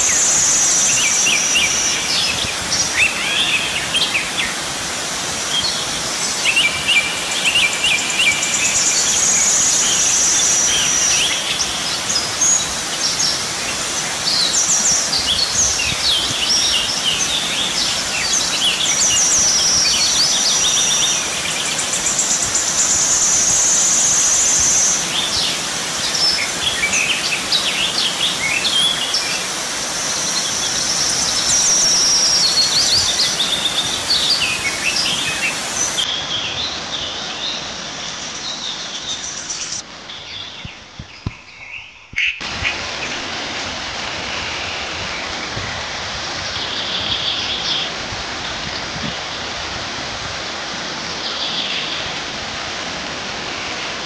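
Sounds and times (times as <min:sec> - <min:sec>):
steady background hiss: 0:00.0 - 0:41.2
birds chirping and calling: 0:24.1 - 0:36.1.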